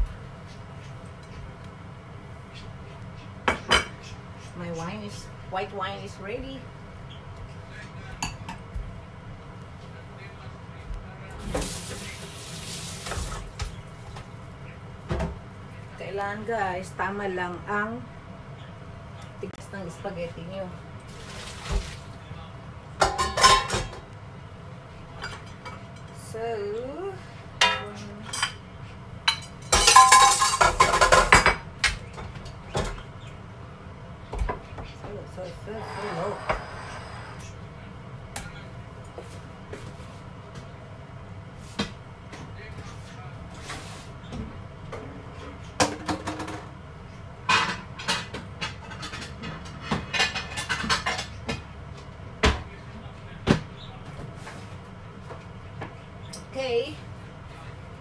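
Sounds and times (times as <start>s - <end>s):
utensils and dishes clattering: 23.0s - 24.1s, 29.3s - 33.0s, 47.5s - 51.6s.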